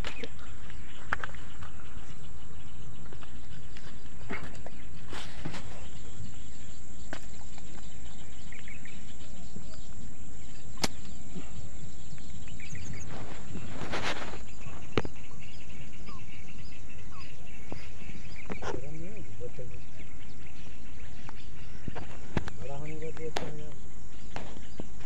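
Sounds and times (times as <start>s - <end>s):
faint bird chirps: 0.0s - 25.0s
short rustle: 12.8s - 15.0s.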